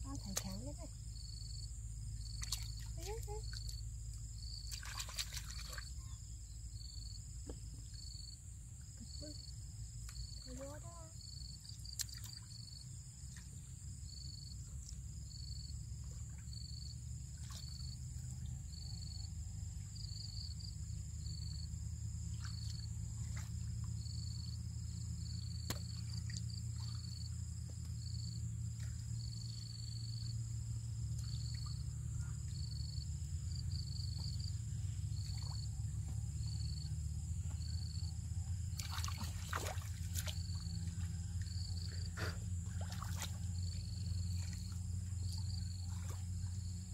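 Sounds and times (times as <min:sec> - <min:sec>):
hands sloshing in muddy water: 0:02.2 - 0:03.8, 0:04.6 - 0:06.1, 0:22.2 - 0:24.2, 0:38.6 - 0:46.9.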